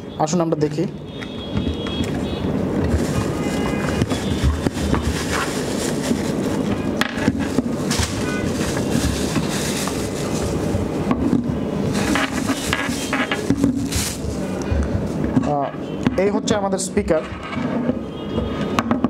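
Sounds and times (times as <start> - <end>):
cardboard scraping: 2.8 - 11.0, 11.9 - 14.6
plastic bag crinkling: 2.8 - 11.0, 11.8 - 14.6.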